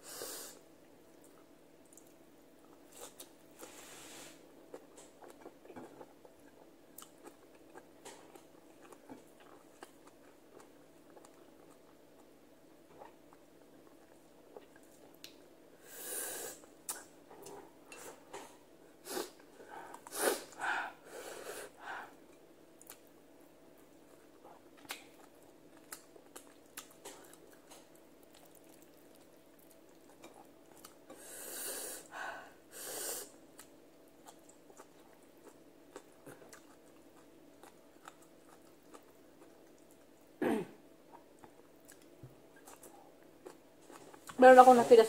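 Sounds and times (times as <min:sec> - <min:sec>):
quiet chewing: 0:01.0 - 0:03.8, 0:04.6 - 0:15.4, 0:16.6 - 0:18.6, 0:22.1 - 0:23.2, 0:23.8 - 0:31.3, 0:33.5 - 0:40.4, 0:41.0 - 0:44.4.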